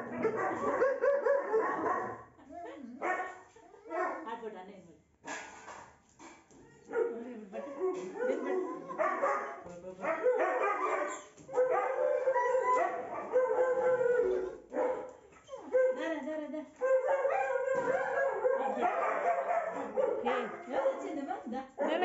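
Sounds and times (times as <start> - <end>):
dog whining and howling: 10.2 - 14.7.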